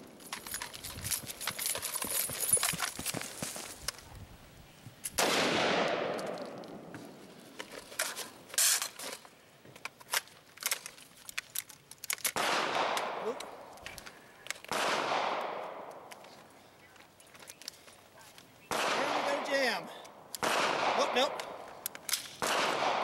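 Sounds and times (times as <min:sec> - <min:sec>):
sharp crack: 0:05.1 - 0:07.1, 0:10.2 - 0:16.3, 0:18.7 - 0:23.0
rifle shots echoing: 0:05.2 - 0:06.9, 0:12.3 - 0:13.7, 0:14.7 - 0:16.1, 0:18.7 - 0:23.0
metallic clicks of rifle handling: 0:07.6 - 0:14.8, 0:15.4 - 0:18.5, 0:21.4 - 0:22.4.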